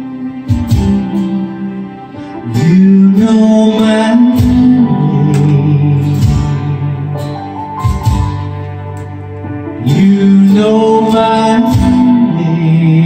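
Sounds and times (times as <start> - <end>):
recorded guitar accompaniment: 0.0 - 13.0
man singing into microphone: 2.4 - 7.2, 9.8 - 13.0.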